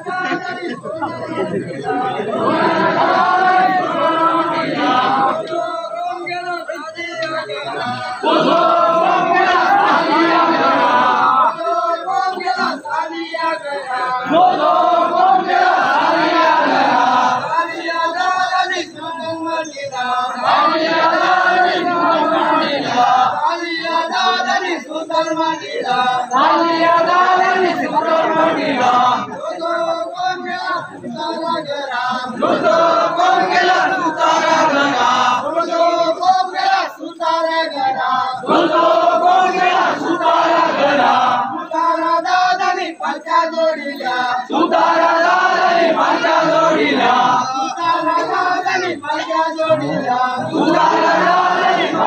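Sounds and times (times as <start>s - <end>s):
crowd chanting in unison: 0.0s - 6.3s, 7.0s - 52.0s.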